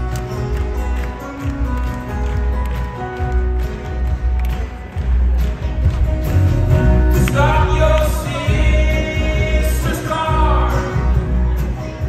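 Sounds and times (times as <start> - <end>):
folk-rock band playing: 0.0 - 12.0
person singing: 7.0 - 12.0.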